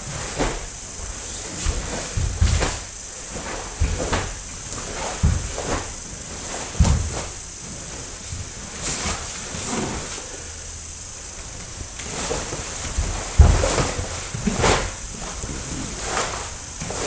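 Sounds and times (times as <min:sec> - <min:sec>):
bare feet thudding on wooden floor: 0:00.0 - 0:10.1, 0:12.3 - 0:17.0
cloth swishing and snapping: 0:00.0 - 0:10.2, 0:11.6 - 0:17.0.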